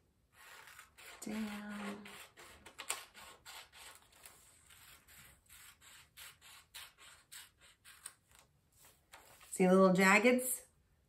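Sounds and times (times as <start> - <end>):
scissors snipping paper: 0.4 - 8.5.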